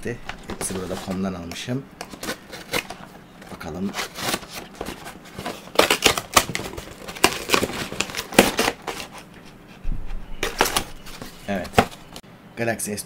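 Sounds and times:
cardboard box torn open: 0:03.8 - 0:09.1.

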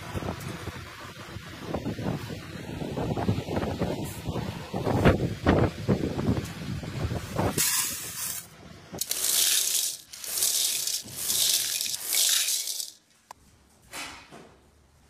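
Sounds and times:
dry lentils pouring into steel bowl: 0:07.6 - 0:13.0.

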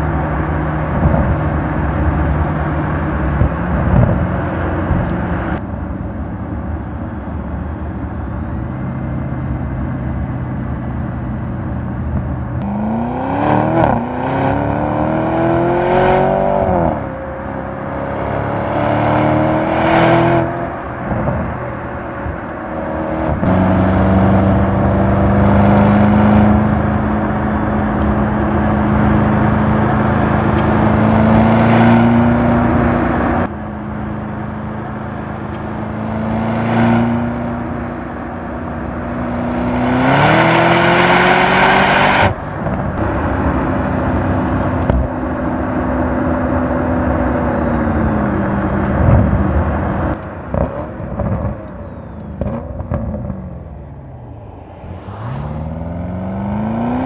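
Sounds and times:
car engine and exhaust: 0:00.0 - 0:57.0.

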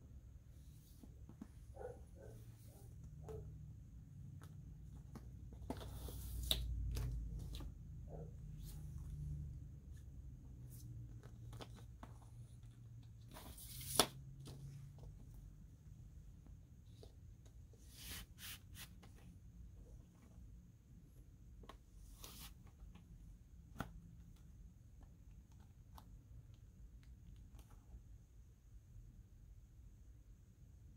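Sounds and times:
card snapping: 0:13.7 - 0:14.2.

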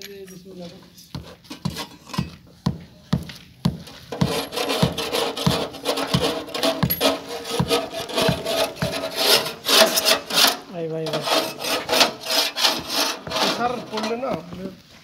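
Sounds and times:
rasping strokes on sheet metal: 0:04.1 - 0:14.2
scraping with metal ringing: 0:04.1 - 0:14.3.

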